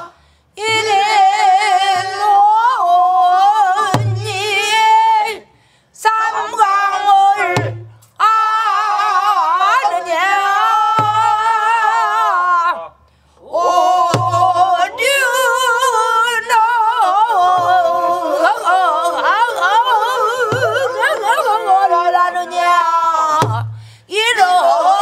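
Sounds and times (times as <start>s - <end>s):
short breaths: 0.1s - 0.6s, 5.5s - 6.0s, 13.0s - 13.4s, 23.7s - 24.1s
person singing with vibrato: 6.0s - 25.0s
barrel drum strokes: 14.0s - 14.7s.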